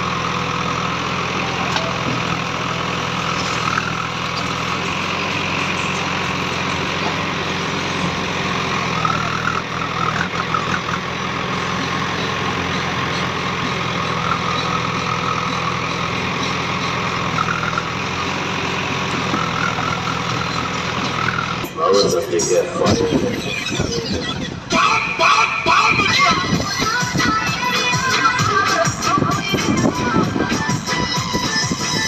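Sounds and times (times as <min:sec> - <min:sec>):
diesel engine running: 0:00.0 - 0:32.0
hydraulic whine: 0:03.2 - 0:24.7.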